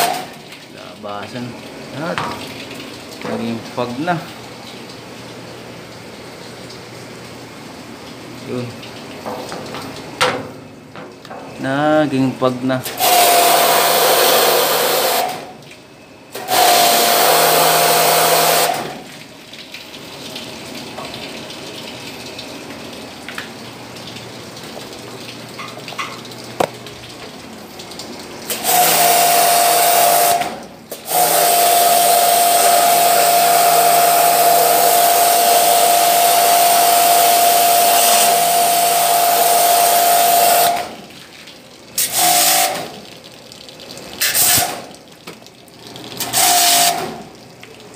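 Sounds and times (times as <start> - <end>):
pump motor whine: 0.0 - 2.4, 11.2 - 41.2, 45.7 - 47.4
pressure washer water jet hissing: 12.8 - 15.4, 16.4 - 18.9, 28.5 - 40.9, 42.0 - 42.9, 44.2 - 44.8, 46.2 - 47.2.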